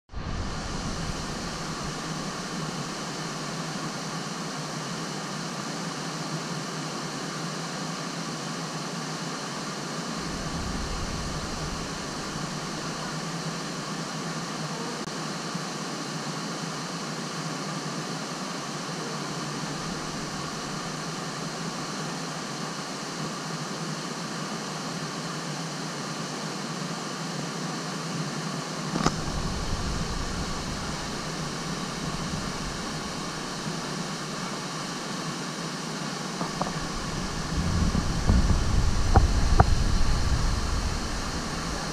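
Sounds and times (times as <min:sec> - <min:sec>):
waterfall rushing: 0:10.1 - 0:13.7, 0:28.9 - 0:35.2, 0:36.4 - 0:41.9
low rumble: 0:10.2 - 0:13.1, 0:29.0 - 0:34.5, 0:36.5 - 0:41.9.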